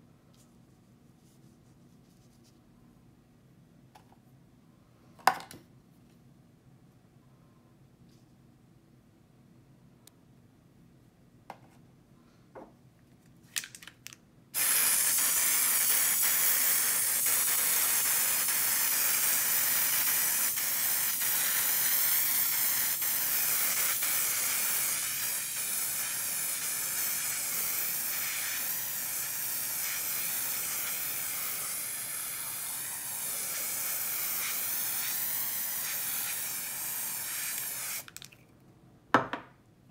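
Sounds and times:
spray paint can hissing: 14.6s - 38.3s.

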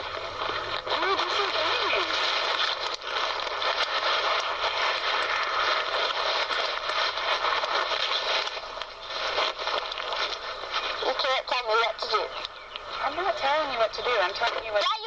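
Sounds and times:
crackles: 0.0s - 15.0s.

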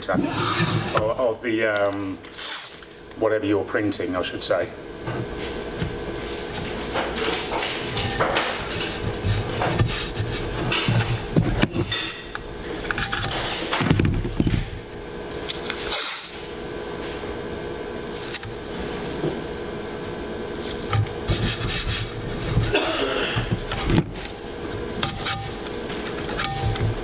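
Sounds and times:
handling scrapes and knocks: 5.1s - 14.7s, 20.7s - 24.4s
tape smoothed on metal: 21.3s - 22.8s.

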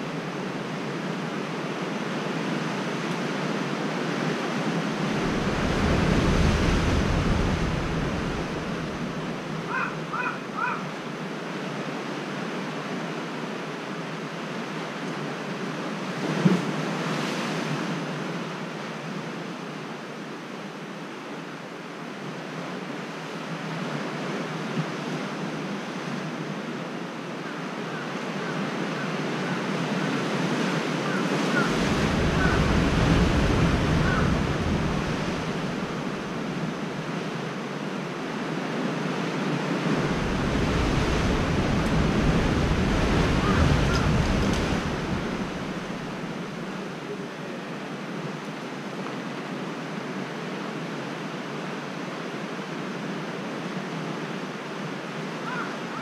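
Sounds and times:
wind rumbling on microphone: 0.0s - 10.7s, 29.4s - 47.3s
surf washing on rocky shore: 0.0s - 56.0s.

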